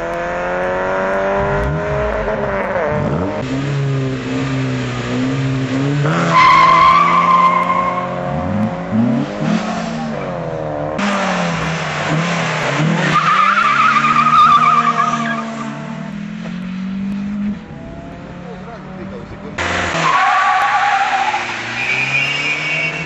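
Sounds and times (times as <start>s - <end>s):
car engines revving: 0.0s - 23.0s
tyres squealing: 13.1s - 15.7s, 19.9s - 23.0s.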